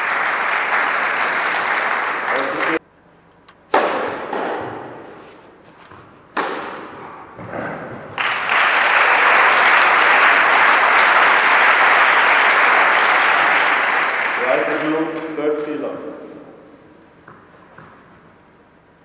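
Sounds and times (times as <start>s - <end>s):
spectators applauding: 0.0s - 2.8s, 8.1s - 15.3s.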